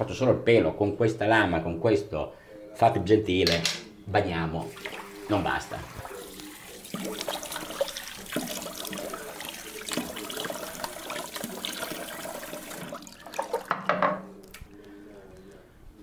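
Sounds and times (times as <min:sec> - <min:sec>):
sink tap running: 0:04.7 - 0:14.0.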